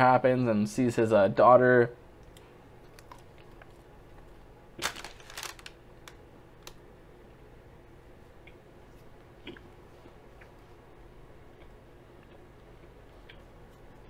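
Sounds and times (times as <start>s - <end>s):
low room hum: 0.0s - 14.0s
soft eating noises: 2.2s - 5.5s, 6.1s - 14.0s.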